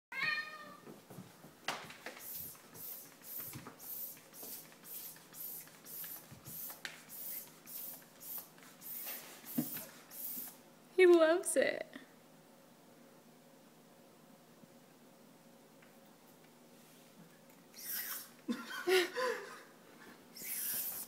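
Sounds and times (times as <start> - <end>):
air pump puffing hisses: 2.1 - 10.6, 17.8 - 18.3, 20.3 - 21.0.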